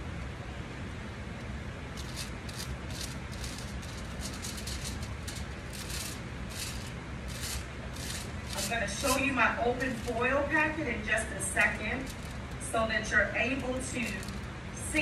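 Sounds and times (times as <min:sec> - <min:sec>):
steady low hum: 0:00.0 - 0:15.0
brush scratching on foil: 0:02.0 - 0:10.3, 0:11.5 - 0:12.8, 0:13.5 - 0:14.5.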